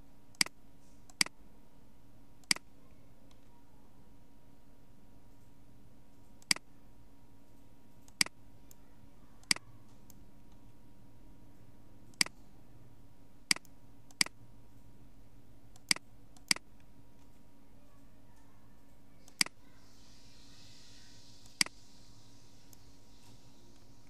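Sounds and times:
computer mouse clicking: 0.3 - 1.4, 2.4 - 2.7, 6.1 - 6.7, 7.4 - 8.8, 9.4 - 10.8, 12.1 - 12.5, 13.5 - 14.9, 15.7 - 17.5, 18.4 - 19.7, 21.2 - 21.9.

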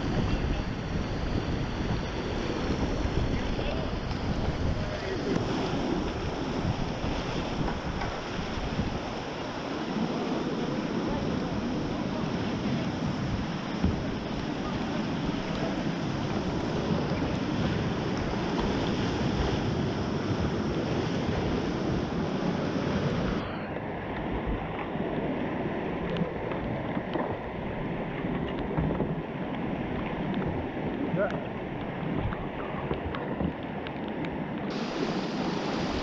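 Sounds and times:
whitewater rapids rushing: 34.7 - 36.0.

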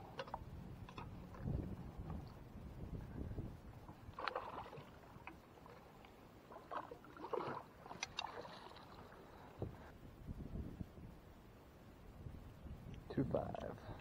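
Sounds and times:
wind rumble on microphone: 0.0 - 5.2, 9.3 - 14.0.

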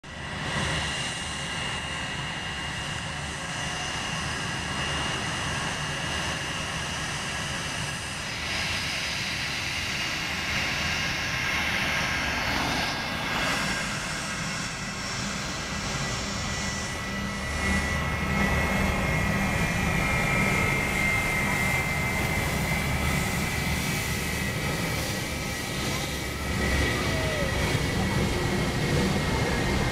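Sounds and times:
jet engines whining at taxi: 0.0 - 29.9.

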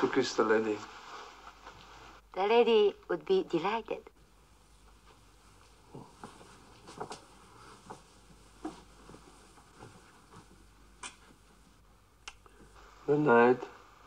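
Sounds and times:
faint rustles: 0.0 - 2.3, 4.5 - 11.9.

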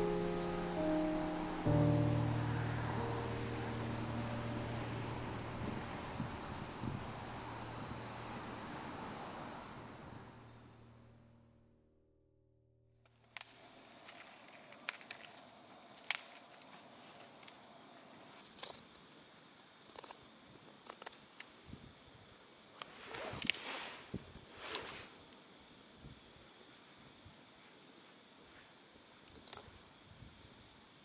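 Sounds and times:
brief rustle: 22.8 - 25.2.

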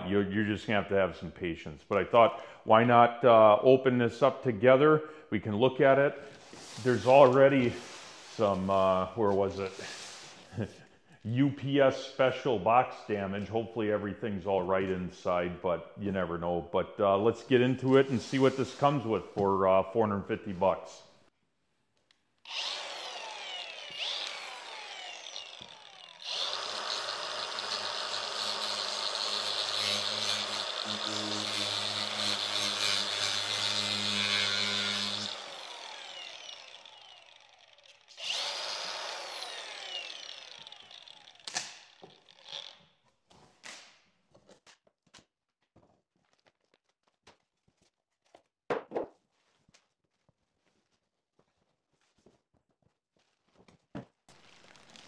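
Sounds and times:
cardboard rustles and scrapes: 6.2 - 8.7, 49.2 - 55.0
packing tape ripping: 41.4 - 42.7, 54.3 - 55.0.

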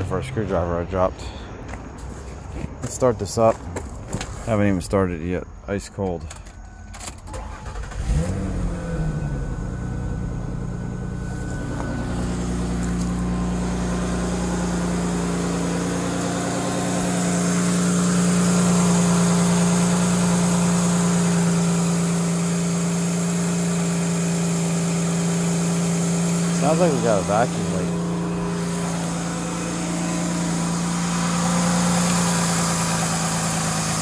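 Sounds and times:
car engine idling: 5.9 - 34.0
car engine cranking: 6.1 - 34.0
hiss: 28.6 - 34.0.

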